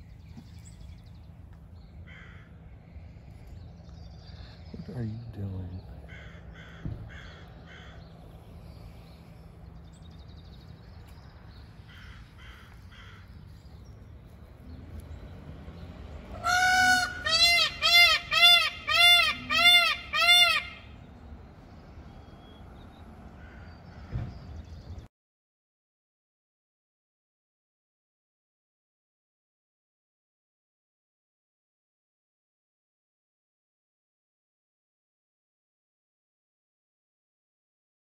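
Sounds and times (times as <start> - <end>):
peafowl honking calls: 11.8 - 13.4, 16.2 - 21.1.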